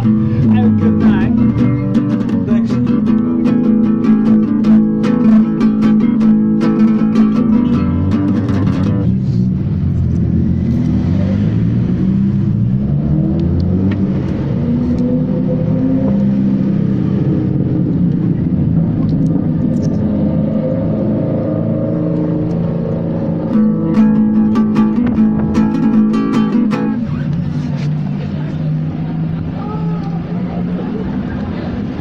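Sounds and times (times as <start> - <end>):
plucked guitar music: 0.0 - 9.8, 18.5 - 29.4
low rumble: 7.7 - 26.1.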